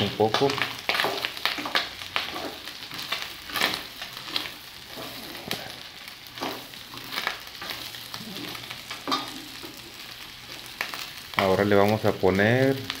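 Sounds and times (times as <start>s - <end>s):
meat sizzling in a pot: 0.0s - 13.0s
spatula scraping a pot: 0.9s - 5.8s.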